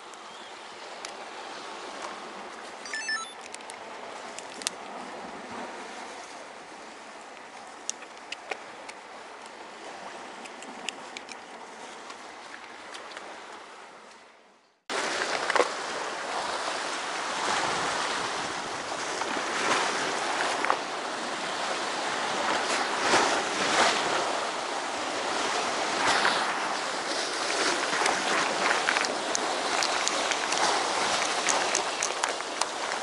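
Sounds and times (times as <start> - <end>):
surf breaking against rocks: 25.4 - 33.0
sharp ticks: 28.0 - 32.8.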